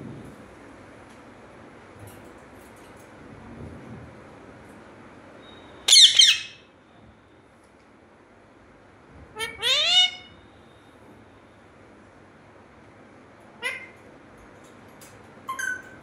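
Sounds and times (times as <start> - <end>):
parakeet squawking: 5.9 - 6.6, 9.4 - 10.4, 13.6 - 14.0.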